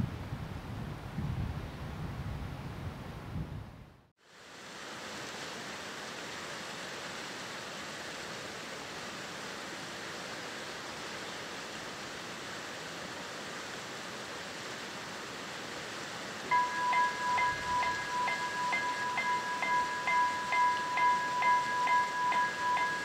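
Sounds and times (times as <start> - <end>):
wind hiss: 0.0 - 23.0
crossing warning bell ringing: 16.5 - 23.0.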